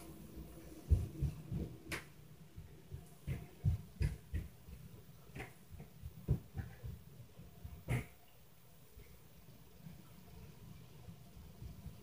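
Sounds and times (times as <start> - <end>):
footfalls through ceiling: 0.0 - 8.2.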